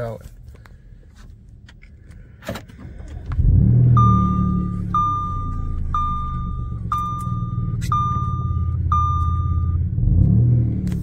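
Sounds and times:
car engine starting and idling: 0.4 - 11.0
dashboard warning chime: 3.9 - 9.9.

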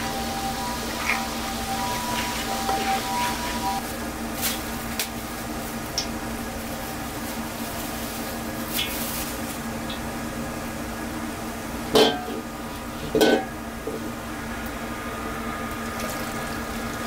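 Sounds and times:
oil sizzling in a pan: 0.0 - 3.8
kitchen utensils clinking: 0.6 - 3.8.

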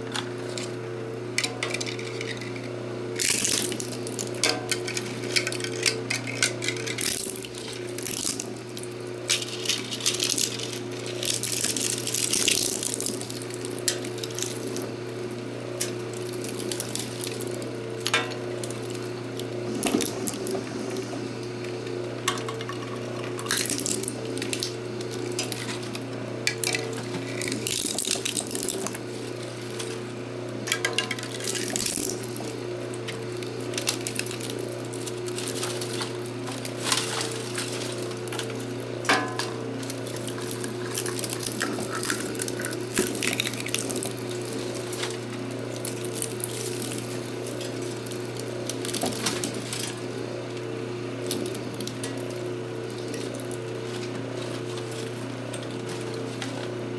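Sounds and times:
shredder motor humming: 0.0 - 56.9
plastic cracking and clattering: 33.1 - 50.0.

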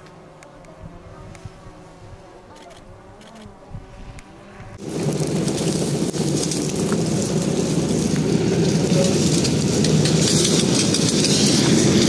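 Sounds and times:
engine running: 0.0 - 12.0
fire hose spraying water: 4.8 - 12.0.

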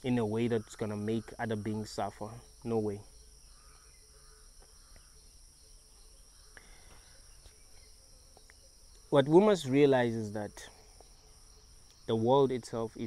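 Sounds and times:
faint ticks: 4.5 - 5.2, 6.5 - 9.1, 10.9 - 11.2, 11.8 - 12.1.

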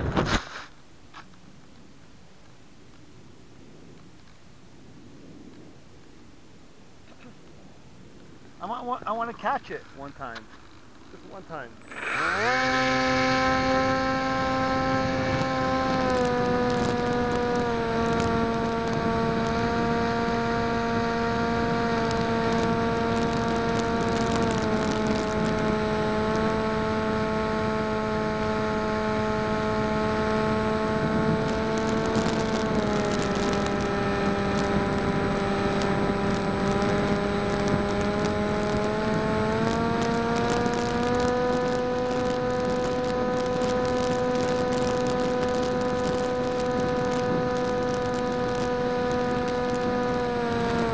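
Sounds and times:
electric motor and propeller whine: 11.2 - 50.9.

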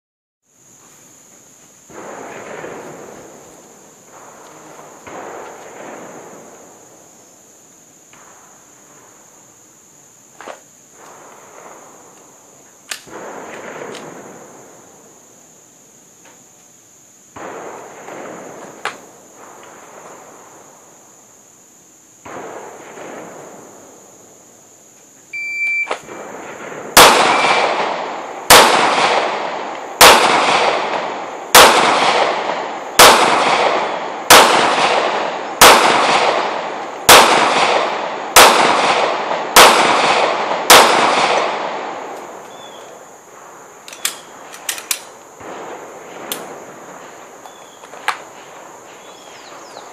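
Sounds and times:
short beep: 25.4 - 26.0
pistol shots echoing: 25.9 - 42.8.

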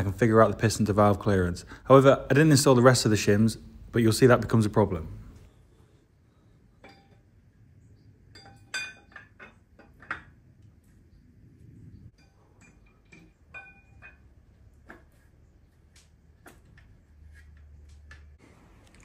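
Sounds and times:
light metallic clinks and taps: 8.3 - 11.0, 12.1 - 15.2.

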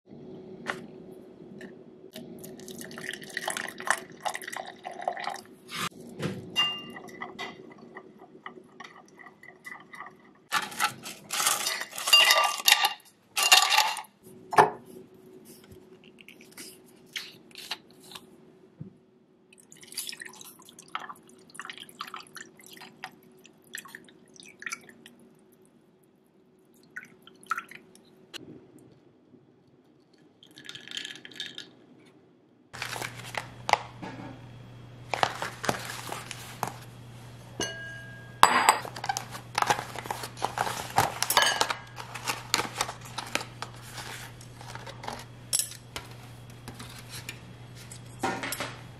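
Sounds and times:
liquid pouring over ice: 2.4 - 5.5, 30.4 - 31.7
metal spoon clinking in glass: 6.6 - 7.5, 11.6 - 14.1, 37.6 - 38.8
ice cubes clattering into glass: 10.6 - 14.1
steady low hum: 32.8 - 48.9.

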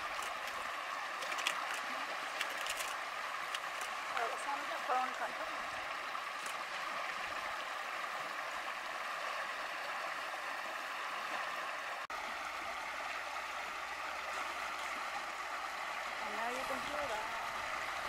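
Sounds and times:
water rushing from culvert: 0.0 - 18.0.

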